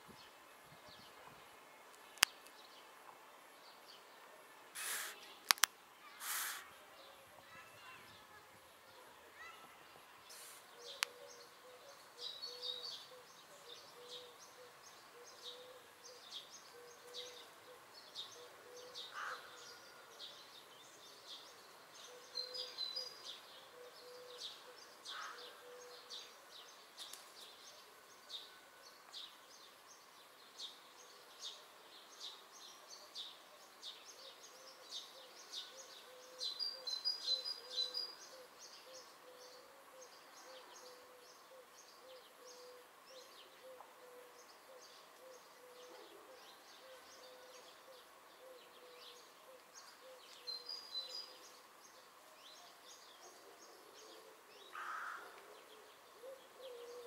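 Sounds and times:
birds twittering: 0:04.8 - 0:06.7, 0:10.3 - 0:20.4, 0:32.6 - 0:57.0
birds calling: 0:04.8 - 0:06.8, 0:10.3 - 0:19.8, 0:34.1 - 0:52.0, 0:52.9 - 0:57.0.

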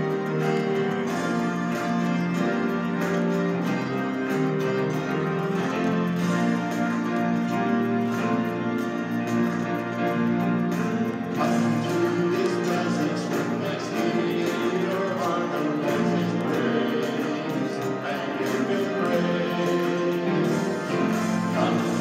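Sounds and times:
piano accompaniment: 0:00.0 - 0:22.0
men singing worship song: 0:11.4 - 0:22.0.

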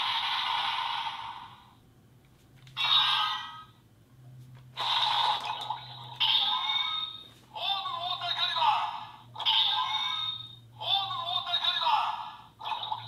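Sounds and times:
toy electronic sound effects: 0:02.8 - 0:03.7, 0:04.8 - 0:07.3, 0:09.4 - 0:11.4, 0:12.6 - 0:13.0.

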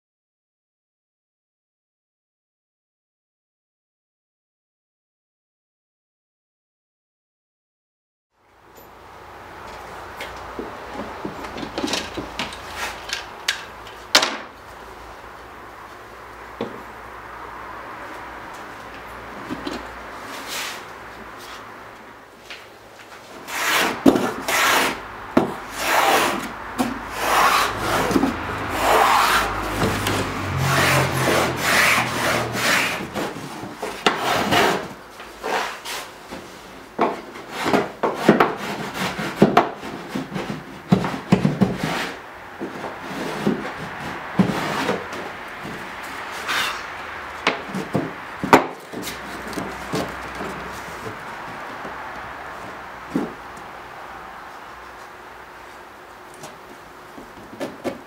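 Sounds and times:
hand plane rasping on wood: 0:23.5 - 0:36.1, 0:37.4 - 0:45.1.

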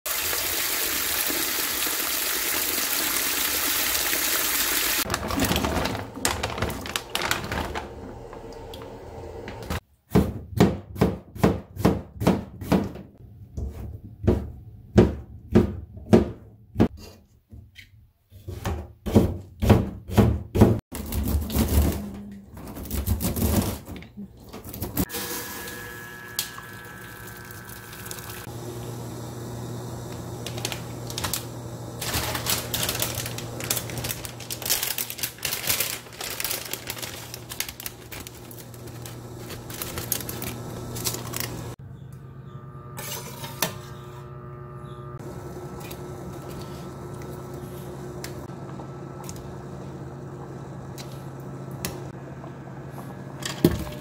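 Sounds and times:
tap water running into metal pot: 0:00.1 - 0:05.1, 0:26.3 - 0:28.5.

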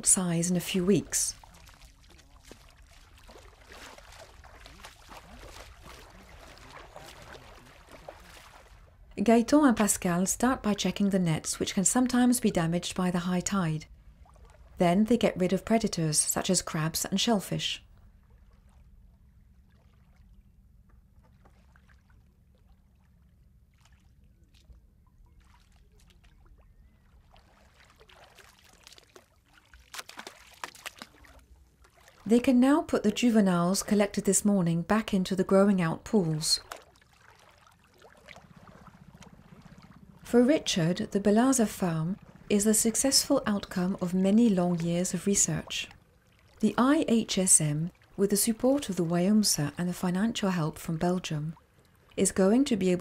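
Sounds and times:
feet splashing through shallow water: 0:01.3 - 0:09.0, 0:14.1 - 0:14.8, 0:21.2 - 0:32.3, 0:36.6 - 0:40.9, 0:43.8 - 0:46.6, 0:47.8 - 0:48.2.

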